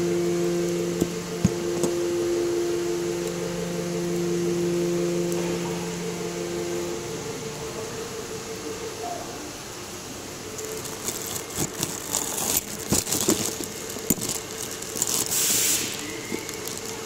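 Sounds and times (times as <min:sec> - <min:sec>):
plastic wrap crinkling: 0:10.5 - 0:17.0
nylon rollers knocking together: 0:10.6 - 0:17.0.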